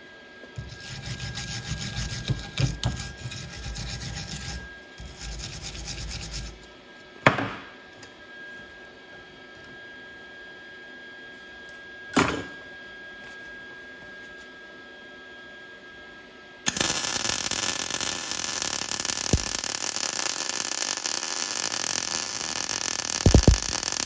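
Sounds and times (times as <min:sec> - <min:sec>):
welding arc crackling: 0:16.7 - 0:24.0.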